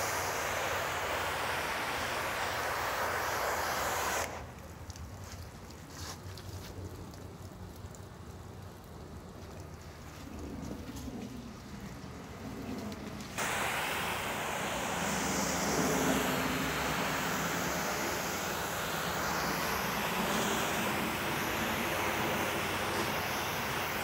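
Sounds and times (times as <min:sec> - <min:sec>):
spray wand hissing: 0:00.0 - 0:04.5, 0:13.4 - 0:24.0.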